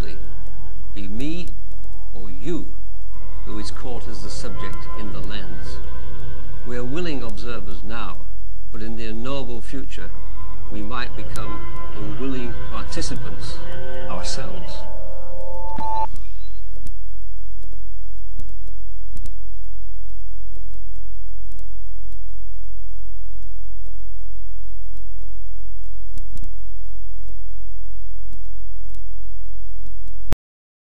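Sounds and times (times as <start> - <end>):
low electrical hum: 0.0 - 30.3
faint irregular clicks: 24.9 - 26.6.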